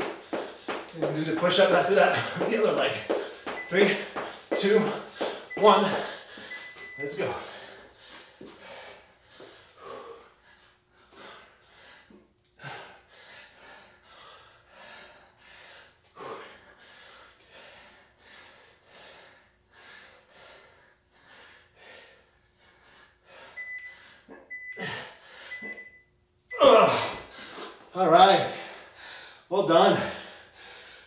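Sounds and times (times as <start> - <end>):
man breathing hard: 0.0 - 25.8, 26.9 - 31.0
timer beeps: 3.5 - 4.2, 5.4 - 7.4, 23.6 - 27.3.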